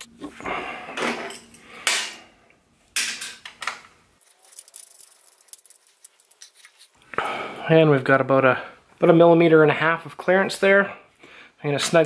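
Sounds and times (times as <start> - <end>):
metal parts clattering: 4.2 - 6.8
small metal parts clicking: 4.2 - 6.9.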